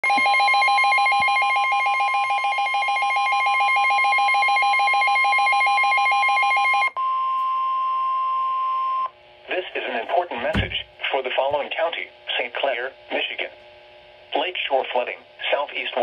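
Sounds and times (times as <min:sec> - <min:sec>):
steady alarm tone: 0:00.0 - 0:07.0.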